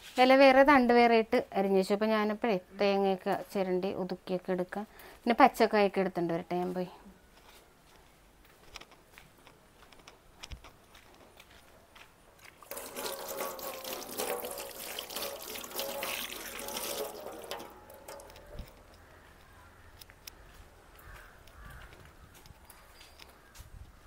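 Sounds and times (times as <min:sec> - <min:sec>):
running water splashing: 0:12.5 - 0:18.9.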